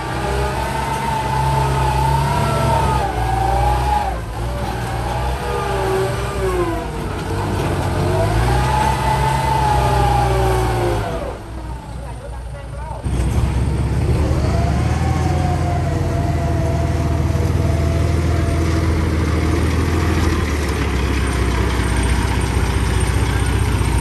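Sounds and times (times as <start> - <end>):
engine whine: 0.0 - 24.0
tractor engine revving: 0.0 - 24.0.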